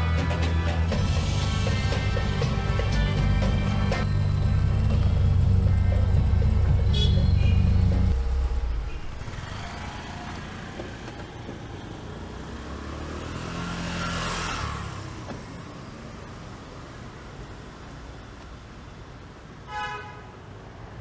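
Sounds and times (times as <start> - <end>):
vehicle engine humming: 0.0 - 19.6
traffic noise: 0.0 - 21.0
vehicle passing by: 11.8 - 15.2.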